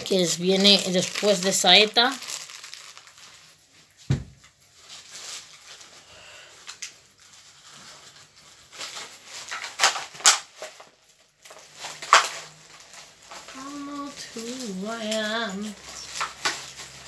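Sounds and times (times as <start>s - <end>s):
packaging rustling and crinkling: 0.0s - 17.0s
knock on packaging: 4.1s - 4.4s.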